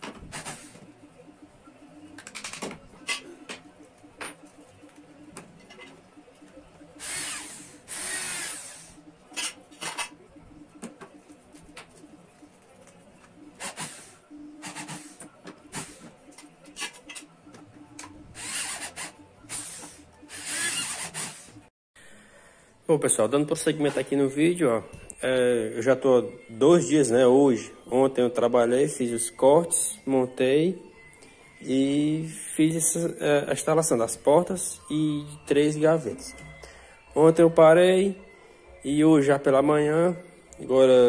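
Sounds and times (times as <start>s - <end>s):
power drill running: 7.0s - 8.9s, 18.4s - 21.5s.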